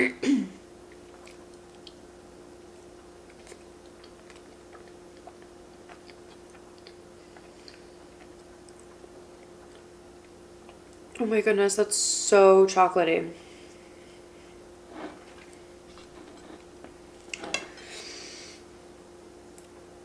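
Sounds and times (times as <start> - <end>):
steady low hum: 0.0 - 20.0
soft chewing with mouth clicks: 0.8 - 11.2, 13.6 - 17.7, 19.5 - 19.9.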